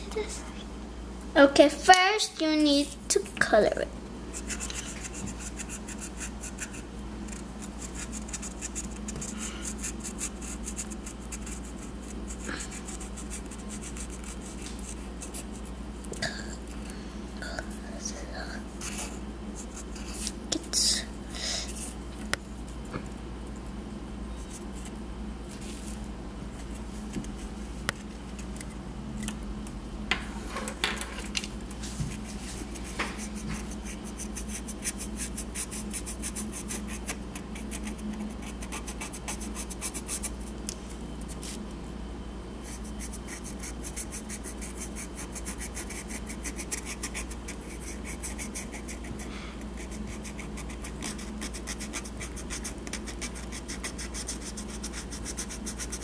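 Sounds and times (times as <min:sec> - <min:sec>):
marker scratching on seashell: 0:04.3 - 0:15.8, 0:32.1 - 0:40.6, 0:42.6 - 0:56.0.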